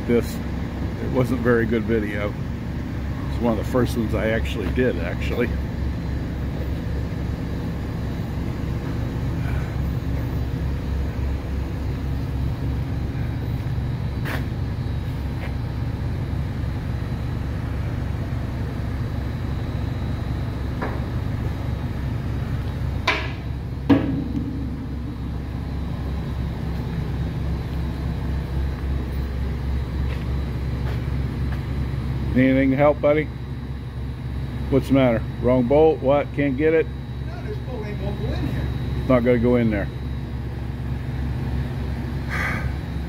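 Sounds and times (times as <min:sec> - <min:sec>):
shop machinery humming: 0:00.0 - 0:43.0
sharp knocks: 0:23.0 - 0:24.8.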